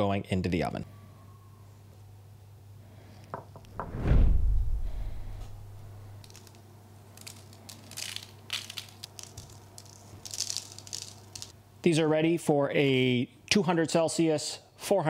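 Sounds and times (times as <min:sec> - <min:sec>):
low steady hum: 0:00.9 - 0:11.8
heavy low thump: 0:03.6 - 0:06.2
sesame seeds pattering: 0:06.2 - 0:11.6.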